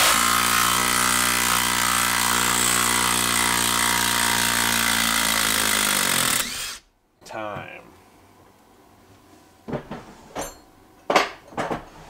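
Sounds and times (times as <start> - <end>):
impact driver running: 0.0 - 6.8.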